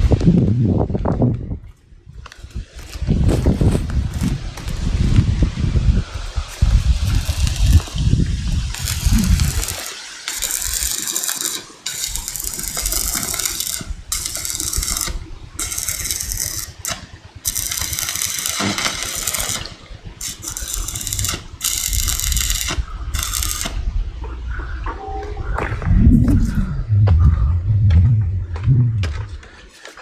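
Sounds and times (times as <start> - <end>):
paint spray gun hissing: 15.8 - 23.8
low rumble: 22.8 - 29.9.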